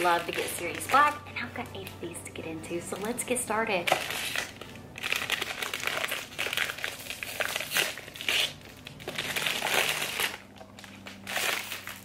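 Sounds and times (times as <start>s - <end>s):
paper bag crinkling: 0.0s - 1.2s, 3.8s - 12.0s.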